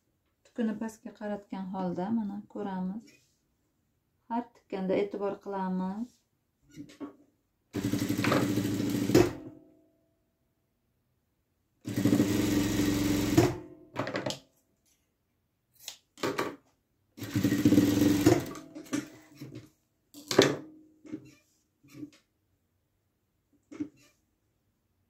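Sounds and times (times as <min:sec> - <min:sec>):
sewing machine stitching: 0:07.7 - 0:09.4, 0:11.8 - 0:13.6, 0:17.2 - 0:19.6.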